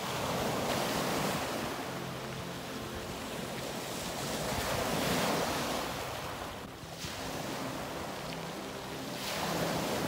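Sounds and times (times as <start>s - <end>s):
sea waves washing ashore: 0.0s - 10.0s
wind on microphone: 2.8s - 10.0s.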